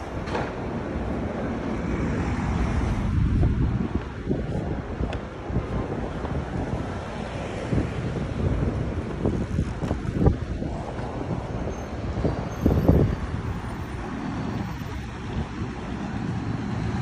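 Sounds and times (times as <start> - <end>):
city street traffic: 0.0 - 17.0
wind buffeting microphone: 0.0 - 17.0.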